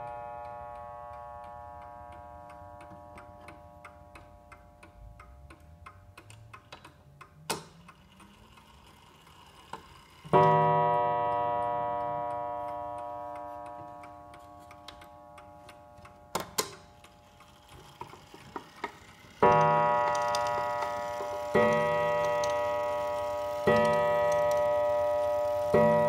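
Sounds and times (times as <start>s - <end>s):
clock gong ringing: 0.0s - 4.1s, 10.3s - 16.4s, 18.7s - 26.0s
clock ticking: 0.0s - 26.0s.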